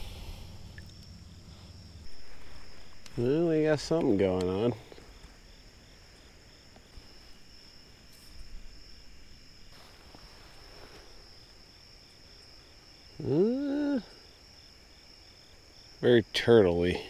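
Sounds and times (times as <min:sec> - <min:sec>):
faint rustle: 0:00.0 - 0:13.1
crickets chirping: 0:00.0 - 0:17.0
pulsing insect trill: 0:00.0 - 0:17.0
short hummed vocal sound: 0:13.2 - 0:14.1.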